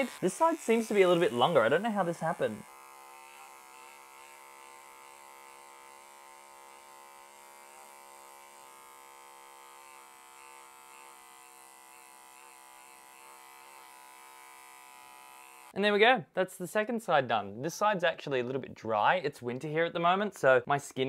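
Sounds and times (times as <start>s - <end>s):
beard trimmer buzzing: 0.0s - 15.8s.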